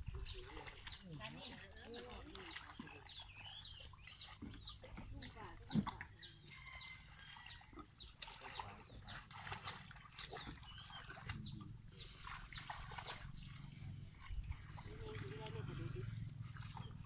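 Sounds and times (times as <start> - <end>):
low steady rumble: 11.4 - 17.0.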